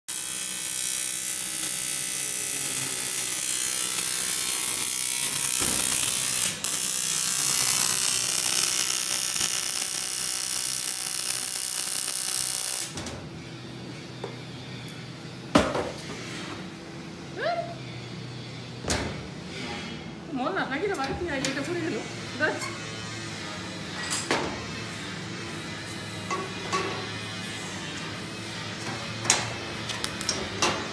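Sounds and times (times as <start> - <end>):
welding arc buzzing: 0.1 - 13.1, 24.6 - 30.9.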